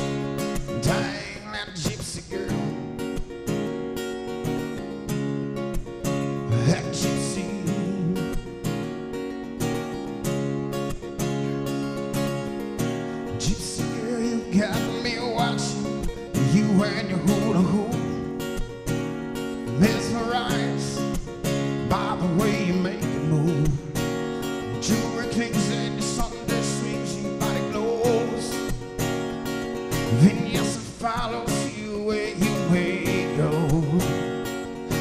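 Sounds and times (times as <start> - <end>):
man singing: 0.0 - 3.0, 6.5 - 8.8, 13.3 - 18.4, 19.6 - 29.0, 30.0 - 35.0
acoustic guitar strumming: 0.0 - 35.0.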